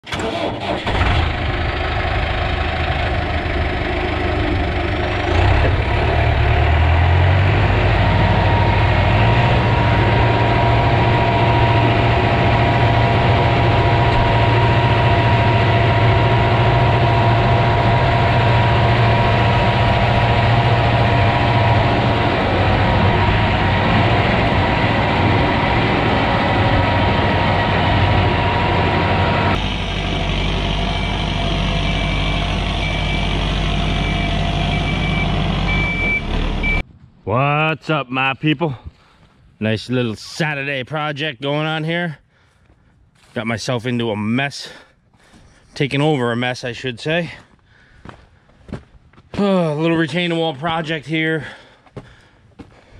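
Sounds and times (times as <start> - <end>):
diesel engine idling: 0.1 - 36.8.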